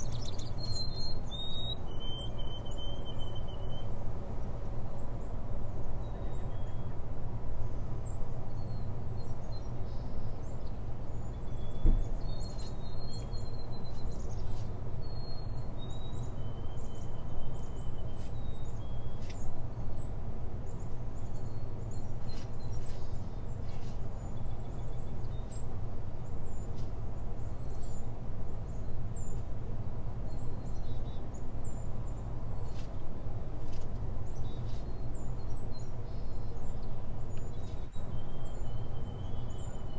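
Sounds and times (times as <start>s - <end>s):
faint bird chirps: 0.0s - 3.9s, 6.0s - 7.0s, 8.0s - 20.1s, 34.3s - 39.9s
low background noise: 0.0s - 39.9s.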